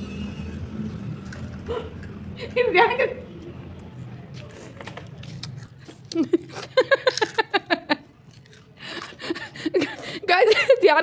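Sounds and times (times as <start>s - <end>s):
crunchy snack being chewed: 1.1s - 2.4s, 4.3s - 7.5s, 8.1s - 9.4s.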